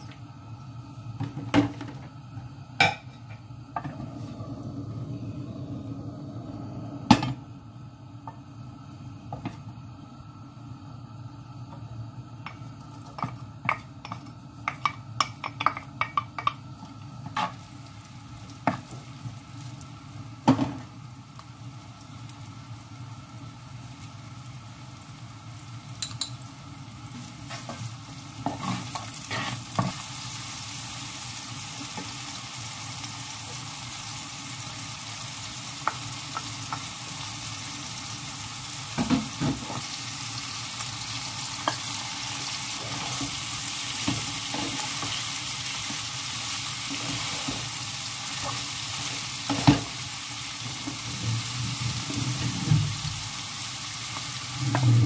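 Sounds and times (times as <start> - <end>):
food sizzling in a frying pan: 0.0 - 55.0
wooden spoon scraping a pan: 27.1 - 30.0, 42.6 - 46.0, 46.7 - 47.8.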